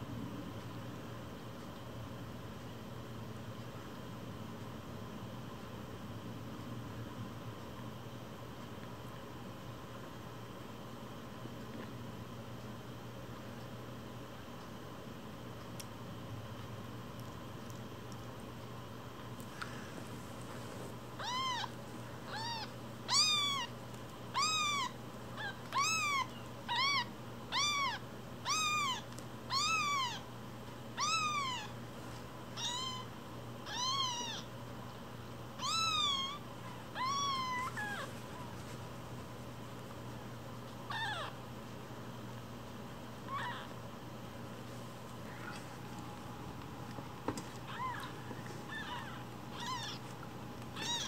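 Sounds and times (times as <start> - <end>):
kitten mewing: 22.3 - 23.7, 35.6 - 38.5, 40.9 - 41.4, 43.3 - 43.7, 47.6 - 51.0.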